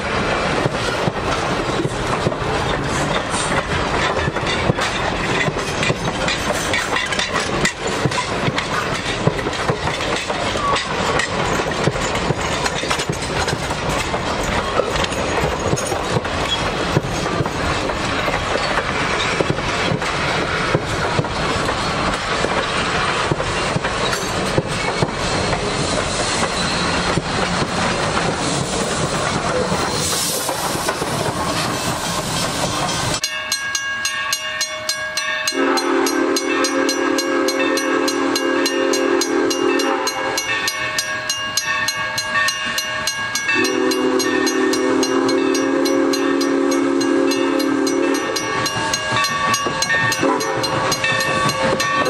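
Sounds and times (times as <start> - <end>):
train rumble: 0.0 - 52.0
train wheels clicking over rail joints: 0.0 - 52.0
steam hissing: 0.1 - 33.2.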